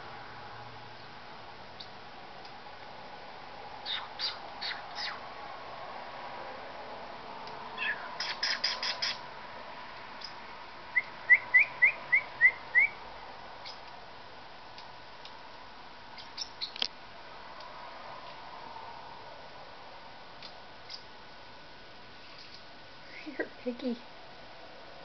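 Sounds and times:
parrotlet chirping: 3.8s - 5.2s, 7.8s - 9.2s, 10.2s - 10.4s, 11.0s - 13.0s, 13.6s - 13.8s, 16.2s - 16.8s, 20.8s - 21.1s, 22.3s - 22.6s.

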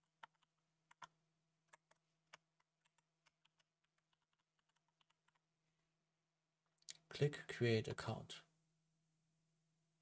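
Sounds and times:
keyboard typing: 0.0s - 5.5s.

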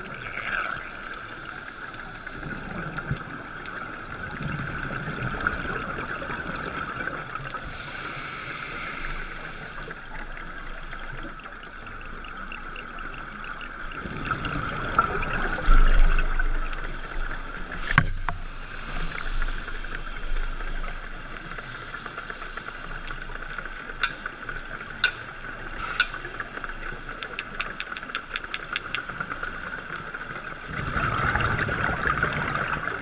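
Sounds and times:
diver breathing through regulator: 7.6s - 10.0s, 17.7s - 23.2s, 25.0s - 26.5s.

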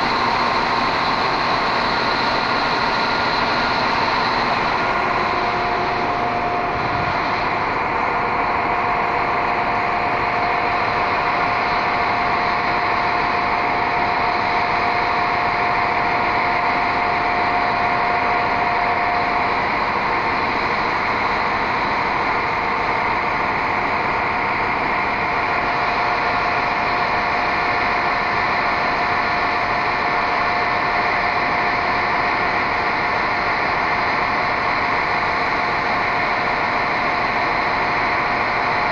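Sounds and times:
high whine: 0.0s - 24.2s
diesel train engine idling: 0.0s - 38.9s.

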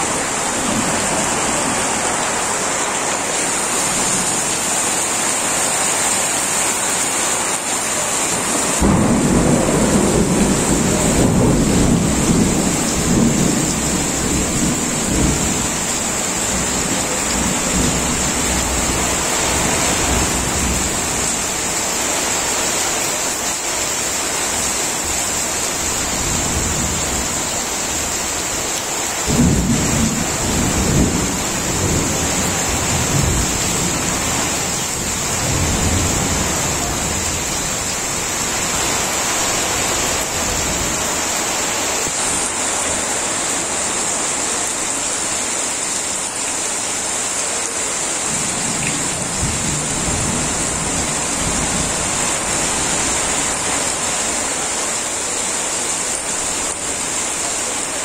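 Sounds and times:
heavy rain on a tin roof: 0.0s - 58.0s
low rumbles of thunder: 8.8s - 21.4s, 29.3s - 38.9s.

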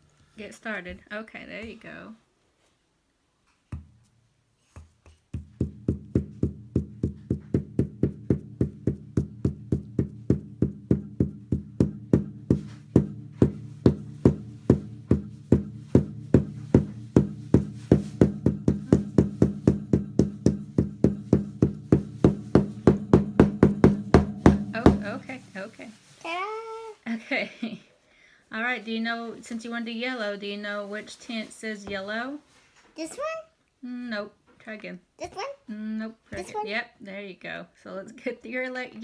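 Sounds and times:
marker tapping on paper: 3.7s - 4.1s, 4.7s - 16.0s.

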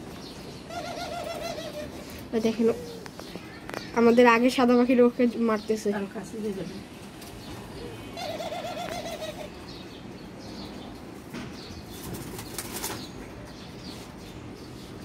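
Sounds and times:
wavering dove call: 0.7s - 2.1s, 8.1s - 9.5s.

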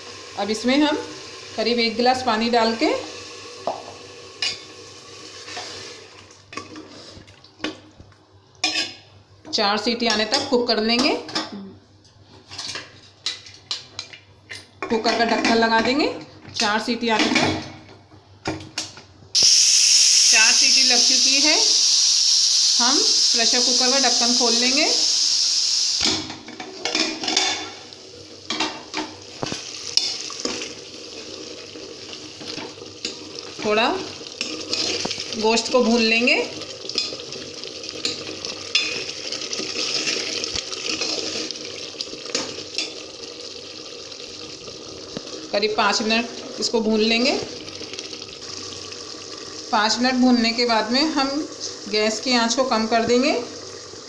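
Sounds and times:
pressure cooker hissing steam: 0.0s - 2.0s, 2.6s - 6.0s, 19.4s - 26.2s
spoon scraping and clinking in pot: 8.6s - 9.0s, 38.0s - 39.0s
ladle stirring food in pot: 29.3s - 35.7s, 36.6s - 43.1s.

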